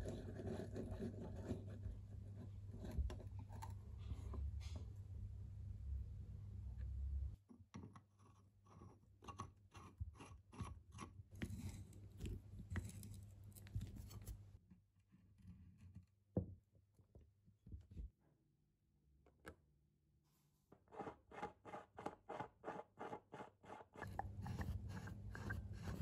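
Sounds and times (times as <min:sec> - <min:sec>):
low steady hum: 0:00.1 - 0:07.4, 0:24.0 - 0:26.0.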